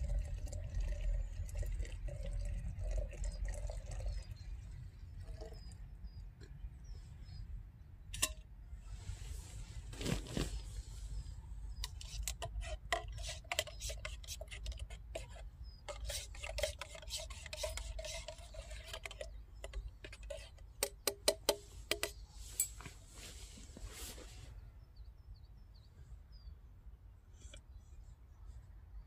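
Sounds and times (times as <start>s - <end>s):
spoon tapping a mug: 20.8s - 22.2s.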